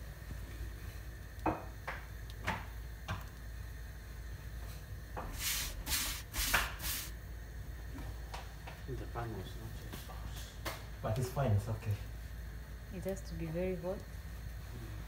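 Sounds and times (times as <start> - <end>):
steady low hum: 0.0 - 15.0
hand swishing chapati on pan: 5.3 - 7.1.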